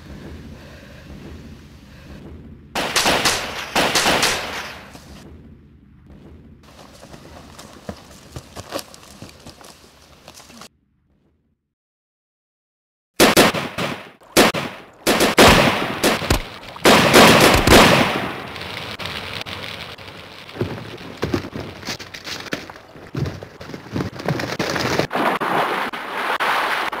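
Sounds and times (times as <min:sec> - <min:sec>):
gunshots and blasts: 0:02.1 - 0:06.7, 0:13.2 - 0:18.6
steady hiss: 0:15.7 - 0:22.2.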